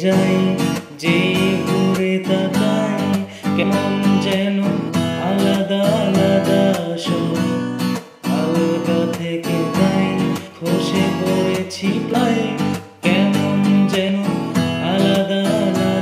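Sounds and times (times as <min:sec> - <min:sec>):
strummed acoustic guitar song: 0:00.0 - 0:16.0.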